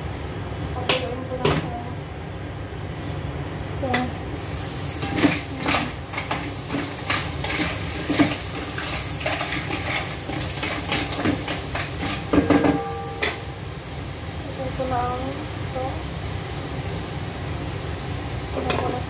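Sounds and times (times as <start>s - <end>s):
food sizzling: 3.9s - 19.0s
cookware clattering: 5.0s - 13.4s
spatula scraping frying pan: 5.0s - 13.4s.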